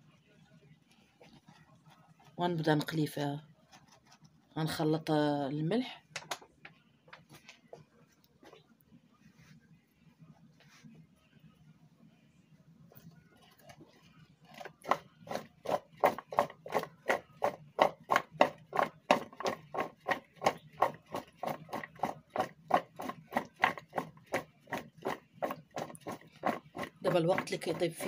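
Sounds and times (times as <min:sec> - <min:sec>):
potatoes clattering in a glass bowl: 0:14.5 - 0:28.0.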